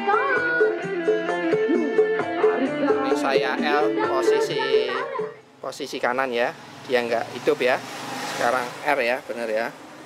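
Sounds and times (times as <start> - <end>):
music over loudspeakers: 0.0 - 5.4.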